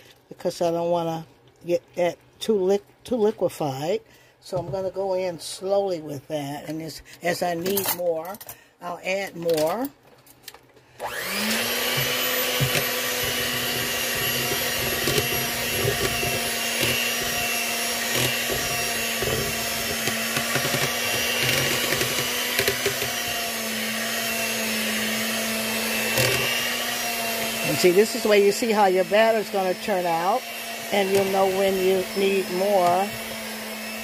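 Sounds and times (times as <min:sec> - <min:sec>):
electric hand mixer running: 0:10.9 - 0:34.0
mixer beaters knocking: 0:11.2 - 0:34.0.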